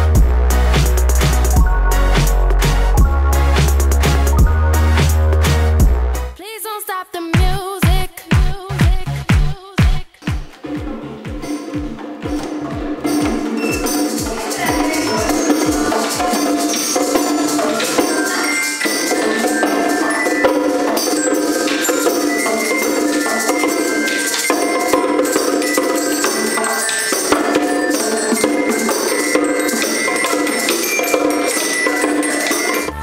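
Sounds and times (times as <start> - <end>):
glockenspiel struck with mallets: 0.0 - 5.6, 11.4 - 33.0
hand drums: 0.0 - 6.0, 7.4 - 33.0
shaker: 13.1 - 33.0.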